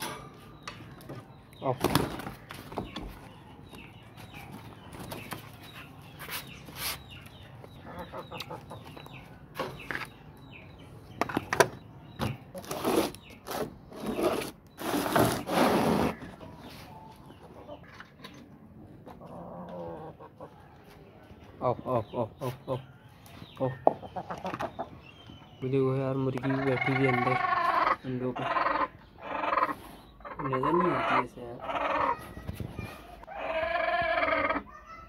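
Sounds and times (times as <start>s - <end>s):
chickens clucking: 0.0s - 35.0s.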